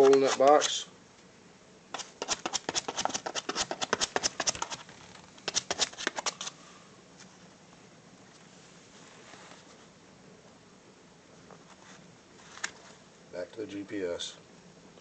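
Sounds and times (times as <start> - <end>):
puppy claws scratching cardboard: 0.0 - 0.7, 1.9 - 6.6.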